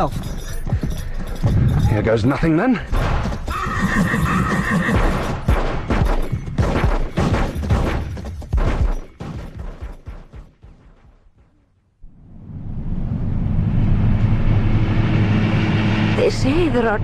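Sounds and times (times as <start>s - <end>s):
horse whinnying: 3.5s - 5.4s
sharp gunshots: 5.0s - 11.0s.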